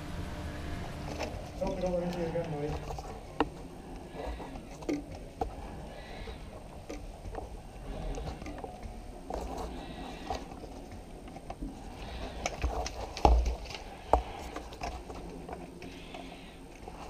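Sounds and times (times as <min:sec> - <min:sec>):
gear rustling and clicking: 0:00.8 - 0:17.0.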